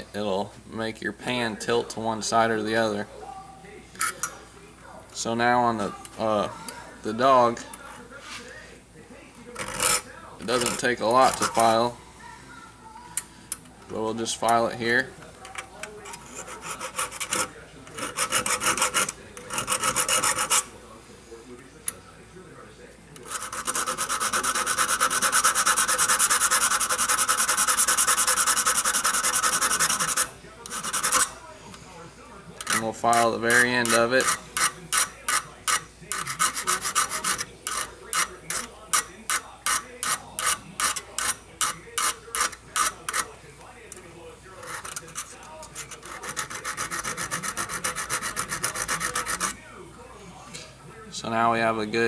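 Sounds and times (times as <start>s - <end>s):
file rasping on steel: 16.0s - 20.7s, 23.2s - 31.4s, 32.6s - 43.3s, 44.6s - 49.6s.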